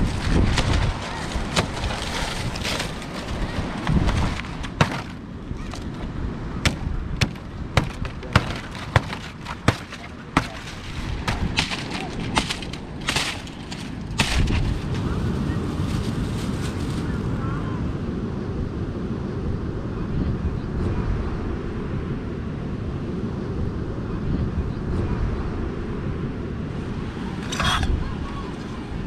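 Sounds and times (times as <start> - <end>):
wind buffeting microphone: 0.0 - 29.0
palm frond cracking and snapping: 0.1 - 6.0, 6.7 - 17.1.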